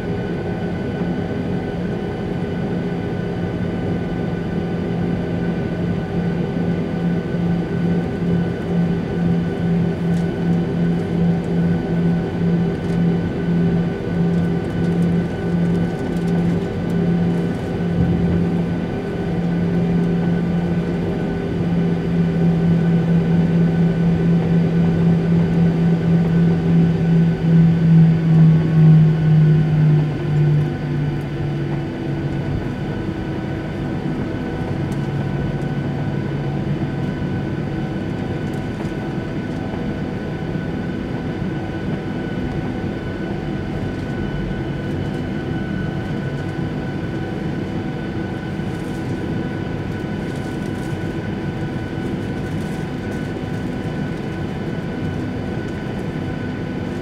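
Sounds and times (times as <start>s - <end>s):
jet engines droning: 0.0s - 57.0s
cabin air hum: 17.4s - 20.3s.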